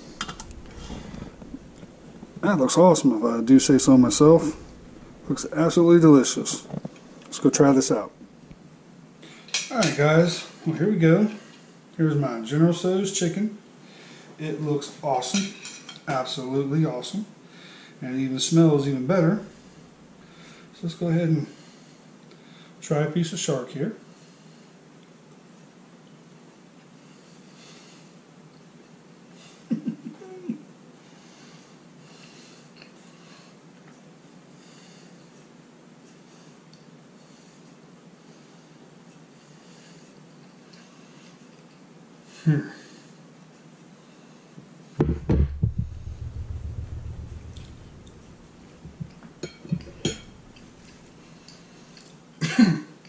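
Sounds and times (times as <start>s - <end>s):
low rumble: 0.0s - 7.3s, 45.0s - 51.1s
fork clinking on plate: 49.4s - 52.1s.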